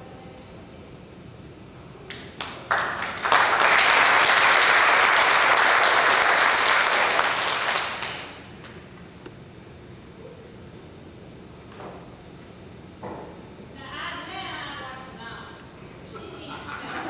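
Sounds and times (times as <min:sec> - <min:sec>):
congregation applauding: 0:02.1 - 0:08.6.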